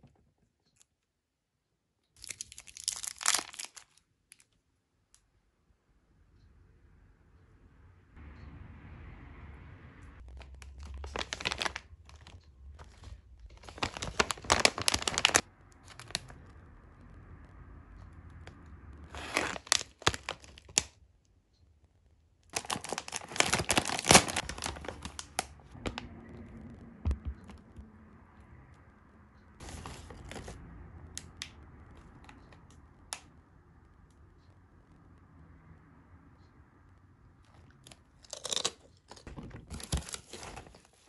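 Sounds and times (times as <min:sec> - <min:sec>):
chip bag crinkling: 0:02.2 - 0:04.5, 0:10.3 - 0:16.3, 0:19.2 - 0:21.0, 0:22.5 - 0:25.5.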